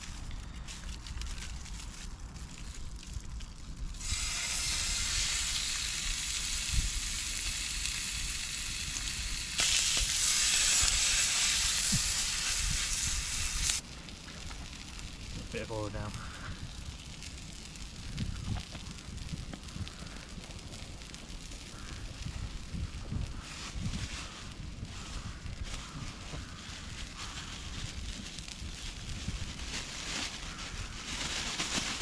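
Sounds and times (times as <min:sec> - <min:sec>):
chicken sizzling in a pan: 0:04.0 - 0:14.4, 0:15.4 - 0:16.8, 0:18.1 - 0:20.8, 0:21.7 - 0:27.9, 0:30.3 - 0:31.4.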